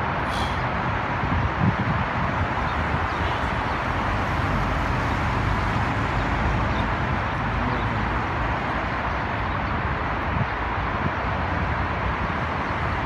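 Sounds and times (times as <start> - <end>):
cars passing on highway: 0.0 - 13.0.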